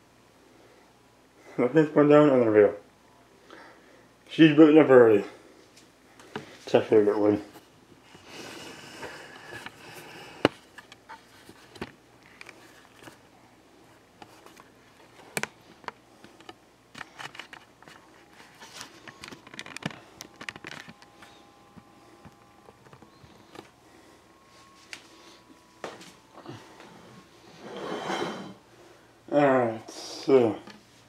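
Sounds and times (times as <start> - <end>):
faint steady tone: 18.2 - 30.8.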